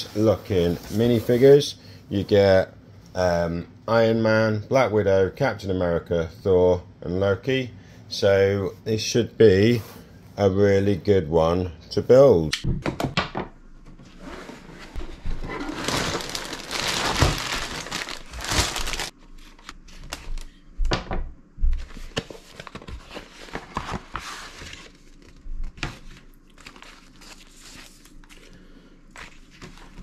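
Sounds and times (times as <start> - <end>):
plastic bags crinkling: 15.4 - 20.5.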